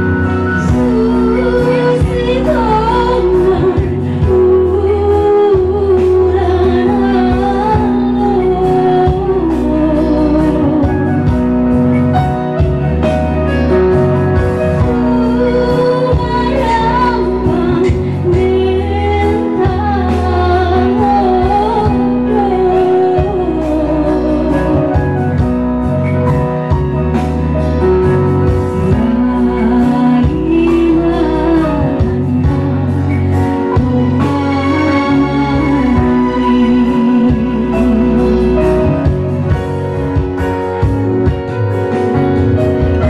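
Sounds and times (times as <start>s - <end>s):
woman singing through microphone: 0.0s - 12.2s, 14.6s - 25.9s, 27.8s - 41.5s
instrumental accompaniment with beat: 0.0s - 43.0s.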